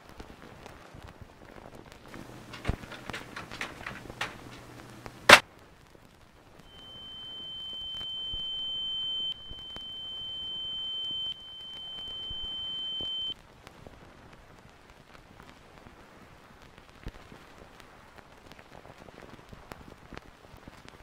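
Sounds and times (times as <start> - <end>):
faint background noise: 0.0 - 21.0
high-pitched electronic beep tone: 6.7 - 13.3.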